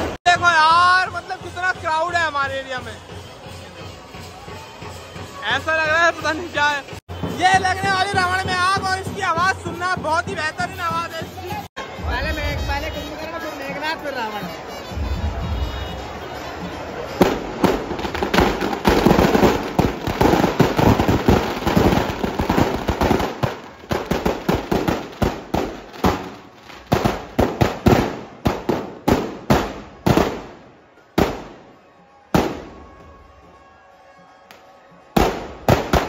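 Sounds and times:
firecrackers crackling and banging: 0:16.8 - 0:33.1, 0:34.5 - 0:36.0.

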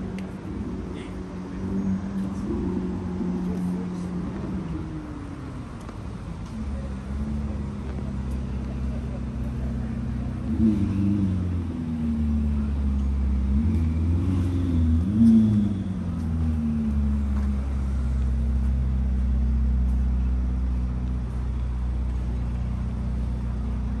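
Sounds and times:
car engine revving: 0:06.5 - 0:24.0.

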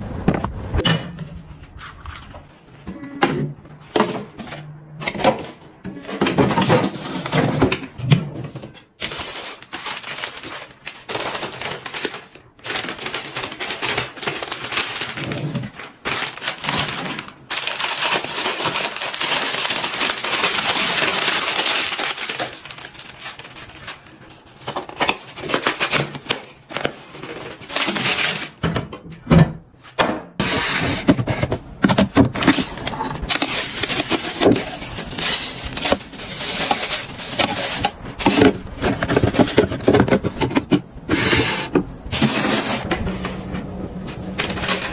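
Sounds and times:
cardboard and paper crinkling: 0:01.4 - 0:03.0, 0:03.8 - 0:28.6, 0:30.4 - 0:44.9
crumpled paper pushed into bin: 0:30.4 - 0:44.9.

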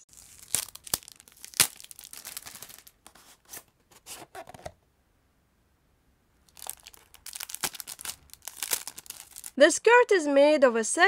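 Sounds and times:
cellophane tearing and crinkling: 0:00.0 - 0:04.7, 0:06.5 - 0:09.6.

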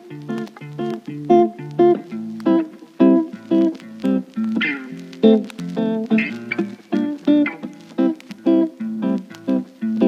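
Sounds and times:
plucked string melody: 0:00.0 - 0:10.0.

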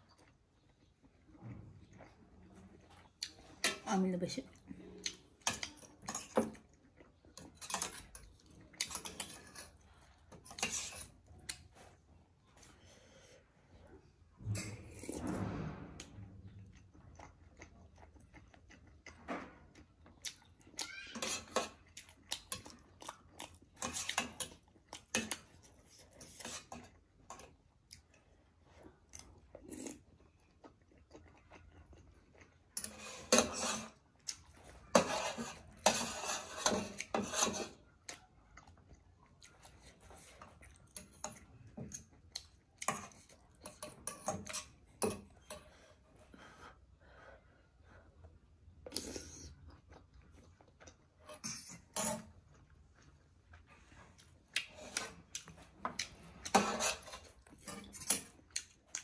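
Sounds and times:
chewing and mouth noises: 0:16.4 - 0:35.9, 0:36.8 - 0:45.8, 0:48.0 - 0:59.0.

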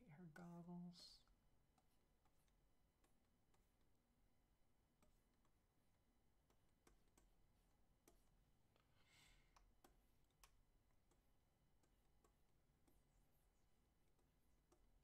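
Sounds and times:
stylus scratching on tablet: 0:00.2 - 0:15.0
stylus tapping on tablet: 0:01.2 - 0:04.2, 0:04.8 - 0:15.0.

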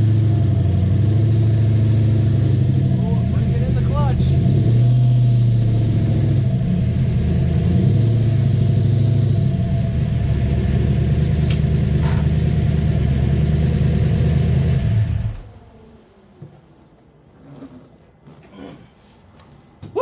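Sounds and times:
go-kart engine idling: 0:00.0 - 0:16.2.

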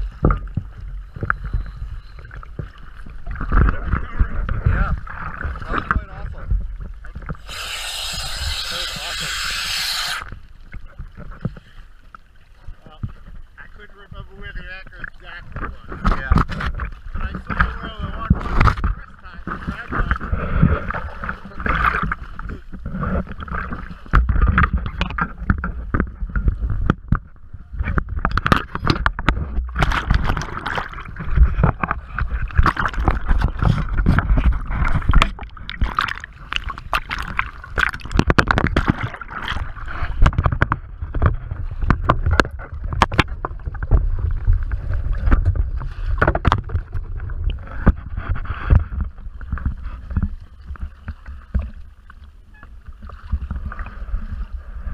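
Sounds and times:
muffled underwater gurgling: 0:00.0 - 0:11.4, 0:12.6 - 0:51.7
sea water slapping against hull: 0:14.5 - 0:52.2, 0:52.9 - 0:54.4
sharp splashes and knocks: 0:15.0 - 0:51.9.

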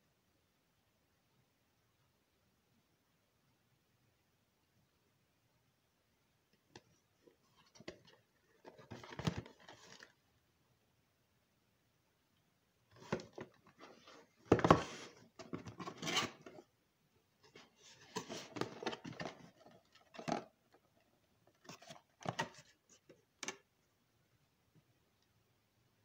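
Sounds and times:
cardboard box being handled: 0:13.0 - 0:16.7.

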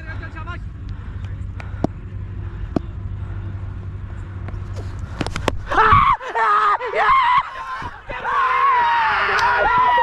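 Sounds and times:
people shouting and yelling: 0:05.6 - 0:10.0.

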